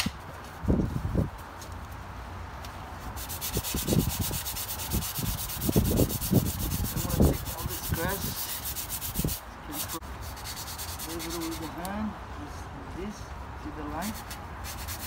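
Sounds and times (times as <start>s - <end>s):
sandpaper rubbing: 3.0s - 11.9s, 14.0s - 15.0s.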